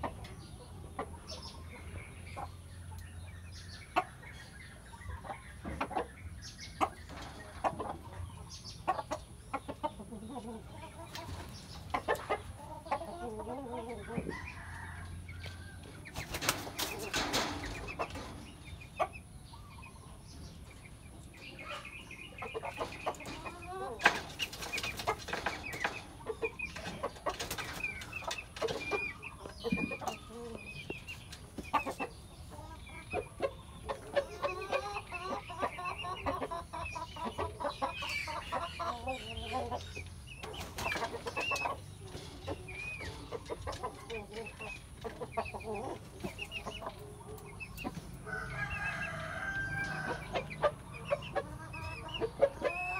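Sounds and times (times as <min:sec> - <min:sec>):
chickens clucking: 0:00.0 - 0:52.9.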